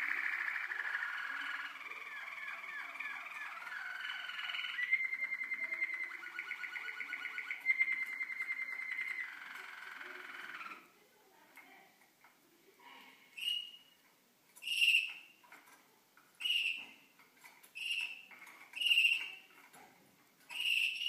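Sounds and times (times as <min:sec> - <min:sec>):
canaries singing trills: 0:00.0 - 0:10.9, 0:13.4 - 0:14.0, 0:14.6 - 0:15.8, 0:16.4 - 0:19.8, 0:20.4 - 0:21.0.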